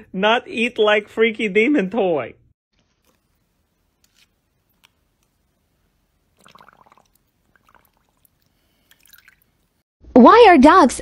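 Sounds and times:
water splashing in plastic tub: 6.3 - 9.8.

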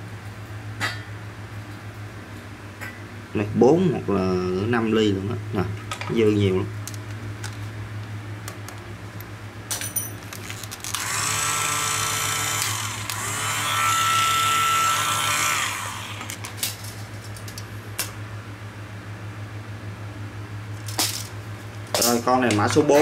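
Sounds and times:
electric drill whining: 10.9 - 16.4.

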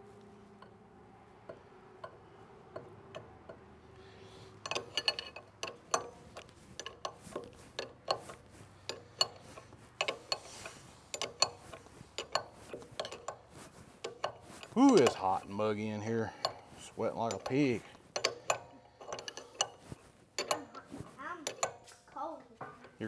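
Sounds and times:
wrench clicking on metal fittings: 4.5 - 15.6, 16.2 - 22.1.

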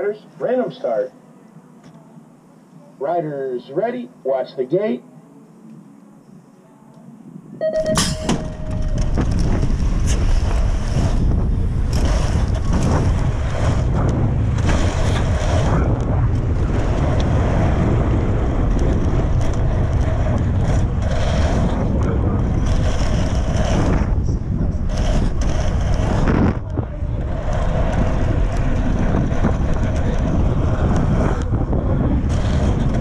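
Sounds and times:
wind rushing over microphone: 5.8 - 33.0
long beep: 7.6 - 9.0
gate dropping with a clank: 7.8 - 8.9.

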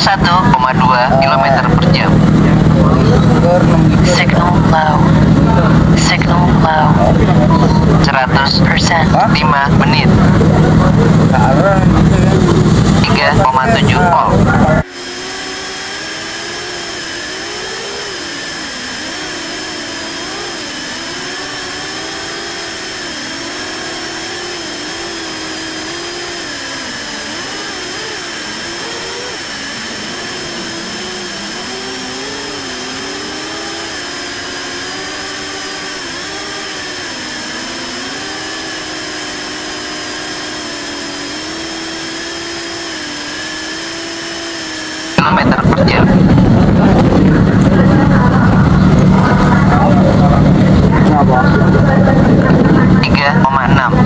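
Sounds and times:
drone motors buzzing whine: 0.0 - 54.0.

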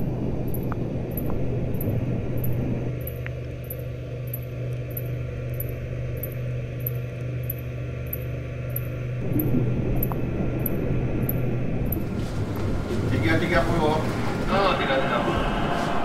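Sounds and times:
low machinery hum: 0.0 - 16.0
faint high ticks: 0.4 - 12.1.

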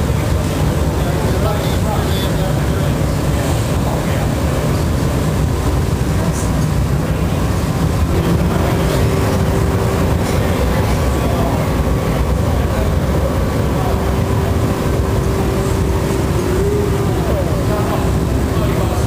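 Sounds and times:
furnace burner roar: 0.0 - 19.0.

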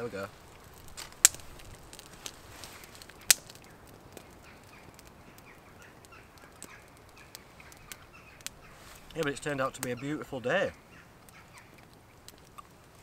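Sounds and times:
burning wood popping: 0.0 - 13.0
wood fire crackling: 0.0 - 13.0
birds chirping faintly: 2.7 - 13.0.

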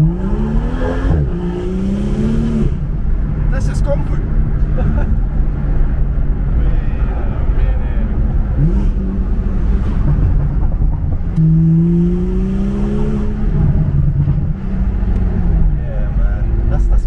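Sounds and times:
car engine running: 0.0 - 17.0
road rumble: 0.0 - 17.0.

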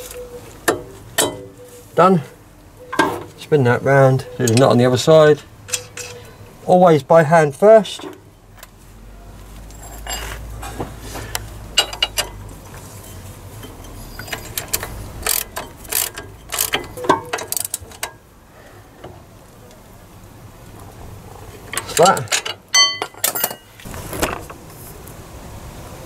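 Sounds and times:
metal clinks: 5.7 - 6.4, 9.7 - 10.4, 11.7 - 18.2, 21.8 - 23.8
ratchet spanner clicking: 13.6 - 18.2.

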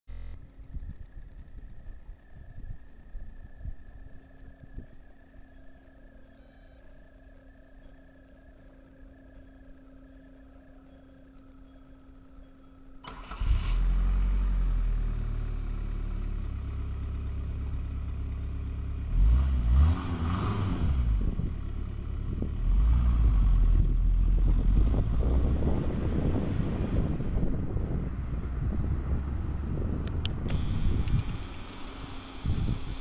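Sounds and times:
diesel engine starting and idling: 13.0 - 33.0.

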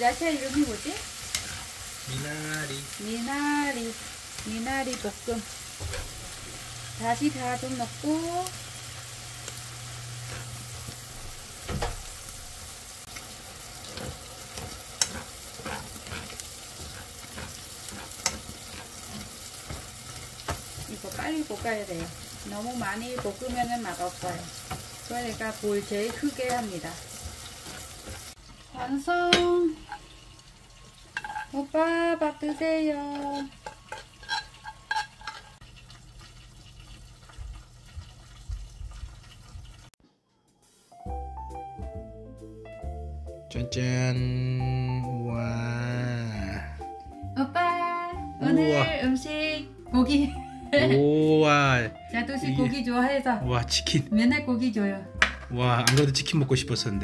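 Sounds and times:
greens sizzling in oil: 0.0 - 40.0, 45.3 - 46.8, 47.6 - 57.0
utensil scraping a pan: 0.4 - 2.0, 10.0 - 11.5, 13.1 - 28.4, 31.1 - 31.7, 32.4 - 35.6
utensils and dishes clinking: 30.9 - 31.6, 32.4 - 37.4, 55.2 - 56.8.

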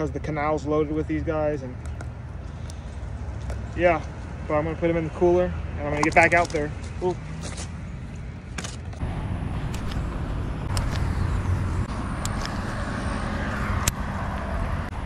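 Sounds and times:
road traffic rumble: 0.0 - 15.0
sharp clicks: 10.6 - 11.1, 12.2 - 12.6.

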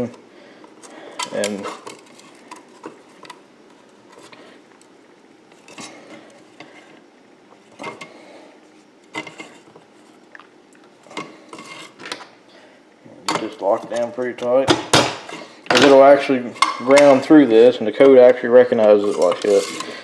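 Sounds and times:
metal connector clicking and scraping: 19.0 - 20.0.

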